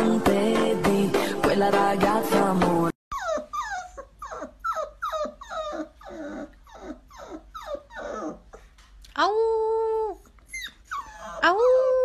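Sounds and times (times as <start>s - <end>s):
puppy whining in short yelps: 3.1s - 8.5s, 10.4s - 12.0s.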